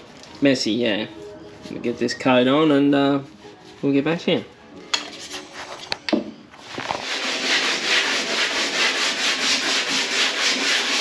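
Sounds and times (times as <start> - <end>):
sandpaper rubbing: 6.6 - 11.0.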